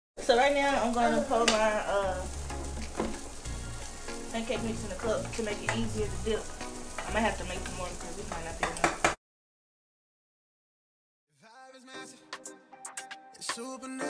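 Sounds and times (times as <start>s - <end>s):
background music with bass line: 2.1s - 6.4s.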